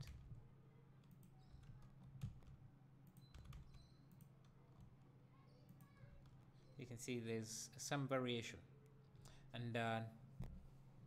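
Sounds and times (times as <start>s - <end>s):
computer mouse clicks: 1.0s - 4.9s.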